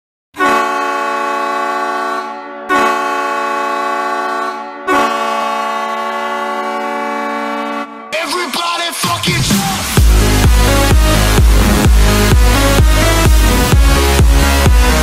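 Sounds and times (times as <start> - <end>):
goal horn blasts: 0.4 - 8.2.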